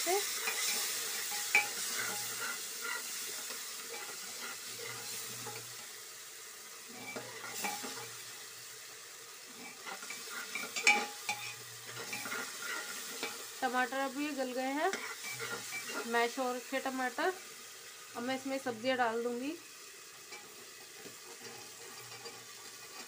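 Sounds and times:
masala sizzling in pot: 0.0 - 23.0
ladle scraping metal pot: 0.3 - 5.8, 6.9 - 8.2, 9.5 - 13.5, 14.9 - 16.1, 20.3 - 23.0.

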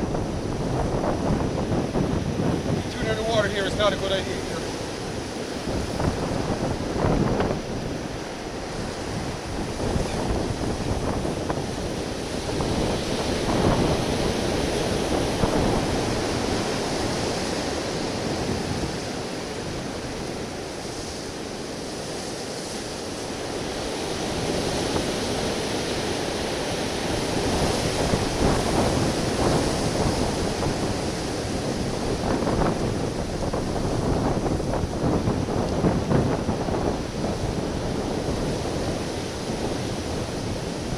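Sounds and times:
waves washing on rocky shore: 0.0 - 40.9
wind buffeting microphone: 0.0 - 40.9.

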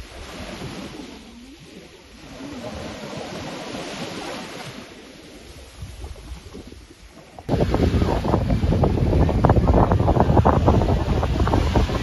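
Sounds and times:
sea waves washing: 0.0 - 12.0
wind buffeting microphone: 5.3 - 12.0.

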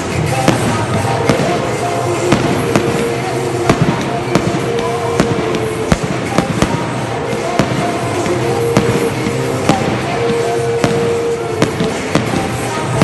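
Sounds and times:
fireworks cracks and bangs: 0.0 - 13.0.

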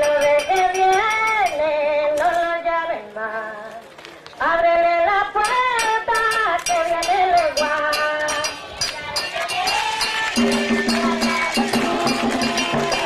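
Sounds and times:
ticking percussion beat: 0.0 - 1.6, 5.4 - 13.0
voices chanting long notes: 8.5 - 13.0.

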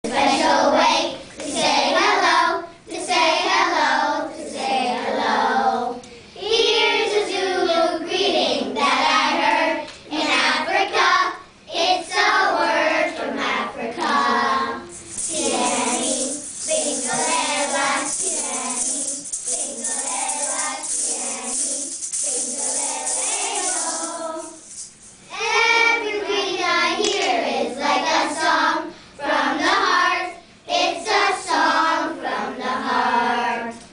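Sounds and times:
young children singing: 0.1 - 33.9
steady high hiss: 14.2 - 32.9.

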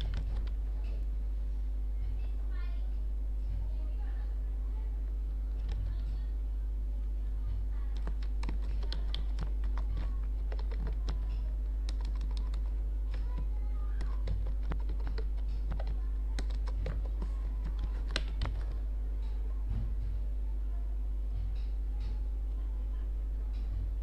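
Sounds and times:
keyboard typing: 0.0 - 0.6, 5.5 - 6.1, 7.9 - 19.4
steady low hum: 0.0 - 24.0.

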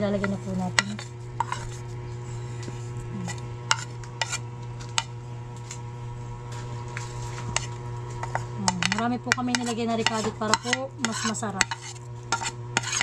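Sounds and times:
steady low hum: 0.0 - 13.0
plastic spoon scraping ceramic plate: 0.2 - 1.9, 2.6 - 5.1, 6.9 - 13.0.

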